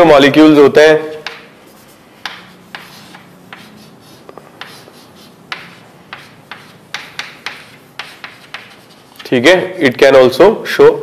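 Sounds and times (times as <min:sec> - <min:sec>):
pen tapping and scratching: 0:01.2 - 0:09.4.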